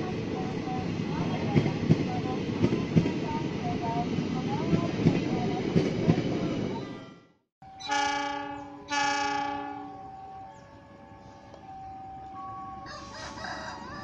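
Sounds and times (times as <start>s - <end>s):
train carriages clattering on track: 0.0s - 6.7s
locomotive horn blasts: 7.6s - 11.6s.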